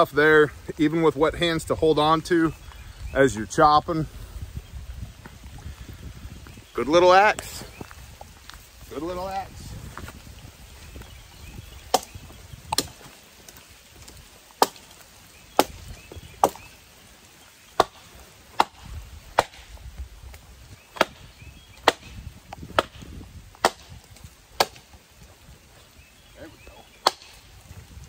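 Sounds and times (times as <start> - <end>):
axe chopping wood: 11.9 - 13.0, 14.6 - 14.9, 15.6 - 15.8, 17.8 - 19.7, 20.9 - 24.0, 24.6 - 24.9, 27.0 - 27.4.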